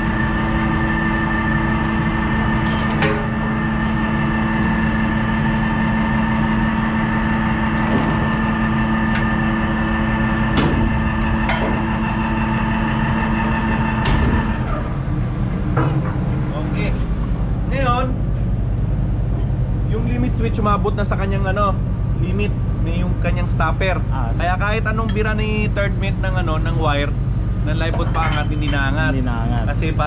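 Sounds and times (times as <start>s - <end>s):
electric winch running: 0.0s - 18.1s.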